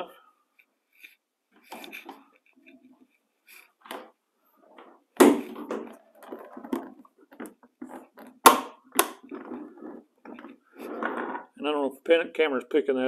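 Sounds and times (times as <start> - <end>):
plastic hose knocking and rustling: 3.8 - 11.6.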